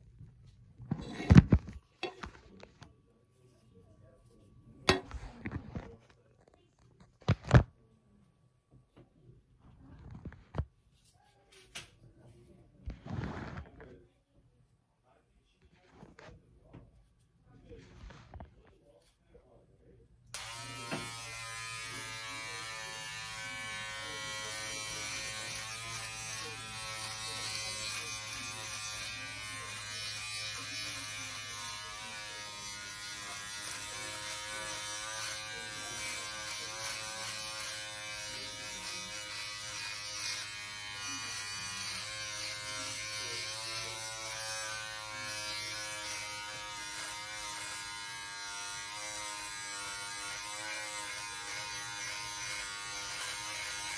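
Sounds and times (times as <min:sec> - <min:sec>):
electric shaver buzzing: 0:20.4 - 0:53.9.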